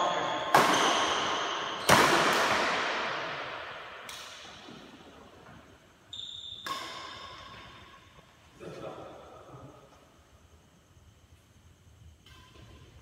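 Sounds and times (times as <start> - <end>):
racket hitting shuttlecock: 0.0 - 5.2, 6.6 - 7.8
brief high squeaks: 6.1 - 6.7.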